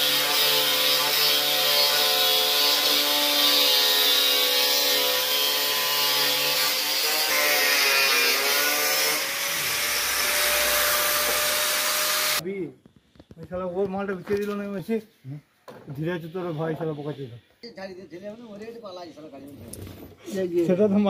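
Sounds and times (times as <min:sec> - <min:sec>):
angle grinder cutting plastic pipe: 0:00.0 - 0:12.4.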